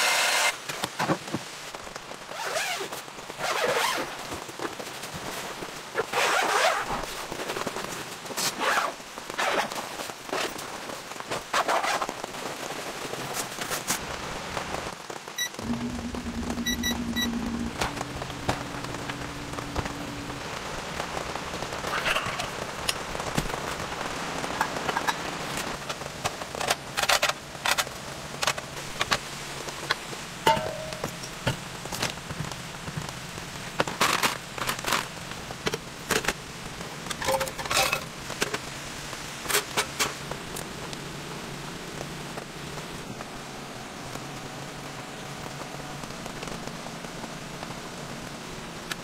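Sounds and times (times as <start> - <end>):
rain on tent: 0.0 - 49.0
camping gear knocking and clinking: 30.5 - 31.6.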